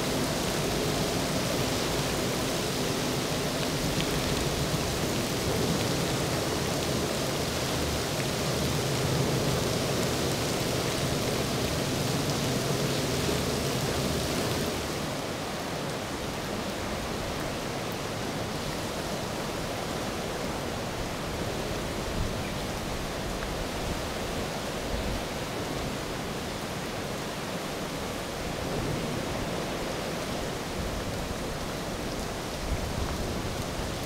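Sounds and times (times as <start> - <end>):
heavy rain and wind: 0.0 - 34.0.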